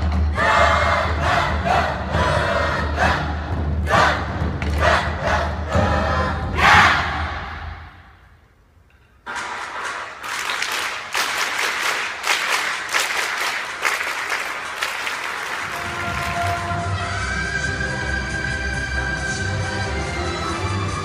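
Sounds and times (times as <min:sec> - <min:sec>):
applause: 0:09.3 - 0:16.8.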